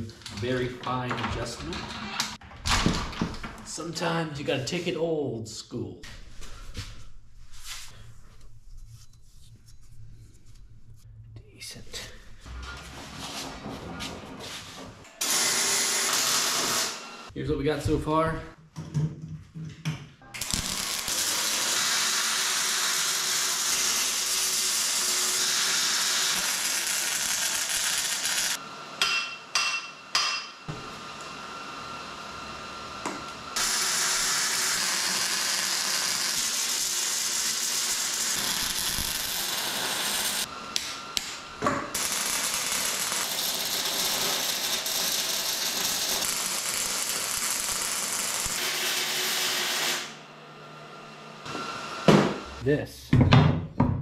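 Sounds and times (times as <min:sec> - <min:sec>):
welding crackling hiss: 0:20.4 - 0:28.6, 0:33.6 - 0:50.2
sharp ringing metal knocks: 0:29.0 - 0:30.5.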